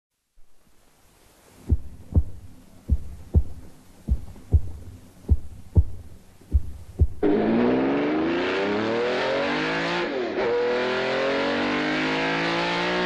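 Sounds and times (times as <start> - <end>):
slow heartbeat: 1.6 - 7.3.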